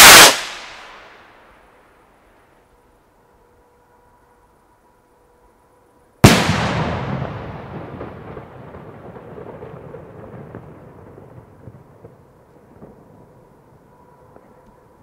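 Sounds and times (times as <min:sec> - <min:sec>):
firework bang: 0:00.0 - 0:01.0, 0:06.2 - 0:13.2
rolling echo: 0:00.0 - 0:01.2, 0:06.2 - 0:15.0.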